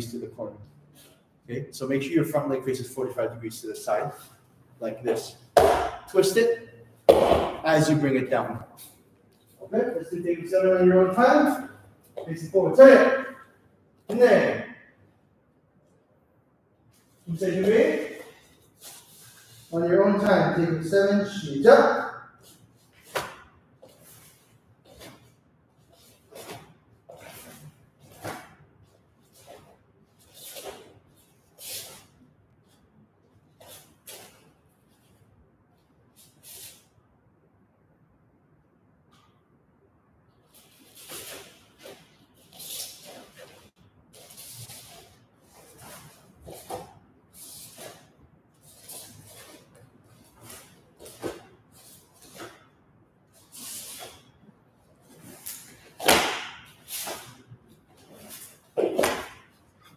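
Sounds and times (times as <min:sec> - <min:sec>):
bare feet thudding on wood: 0:05.6 - 0:06.1, 0:07.1 - 0:07.6
uniform swishing: 0:22.4 - 0:32.8, 0:40.5 - 0:59.9.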